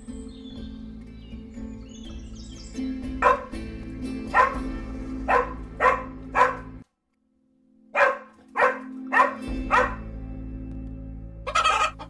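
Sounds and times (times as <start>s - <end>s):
small dog yapping: 3.2s - 3.5s.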